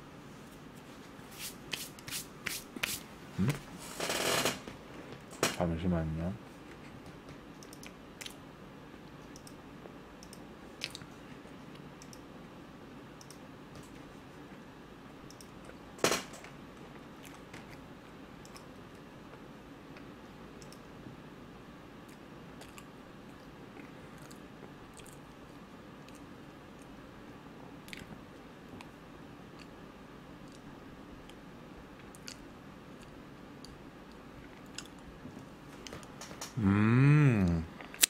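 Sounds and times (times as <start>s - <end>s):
person chewing bread: 22.0s - 26.9s, 27.8s - 28.9s, 32.0s - 35.1s.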